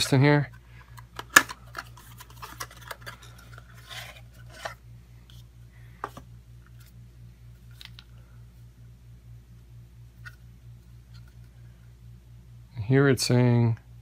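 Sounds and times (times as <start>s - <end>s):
steady low hum: 0.0s - 14.0s
cardboard rubbing and scraping: 2.0s - 4.8s.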